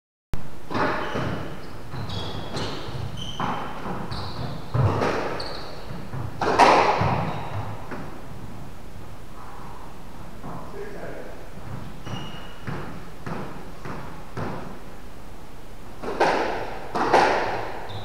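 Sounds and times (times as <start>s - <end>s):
shoe squeaks on court floor: 0.7s - 7.9s, 11.7s - 12.9s, 17.0s - 18.0s
squash ball hitting wall: 0.7s - 8.2s, 11.7s - 14.8s, 16.0s - 17.8s.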